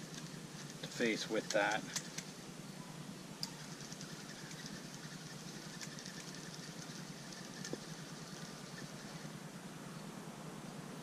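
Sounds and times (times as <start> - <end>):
fishing reel whirring and ticking: 0.0 - 2.4, 3.4 - 9.5
reel click: 3.4 - 9.2.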